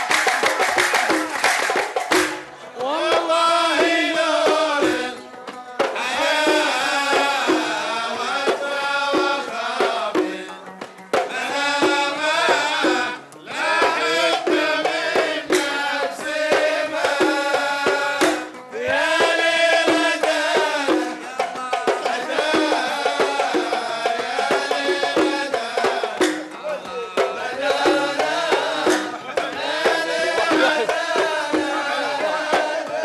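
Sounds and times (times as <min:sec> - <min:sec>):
hand clapping: 0:00.0 - 0:03.0, 0:26.2 - 0:27.3, 0:28.6 - 0:31.6
hand drums: 0:00.0 - 0:33.0
men singing: 0:02.6 - 0:33.0.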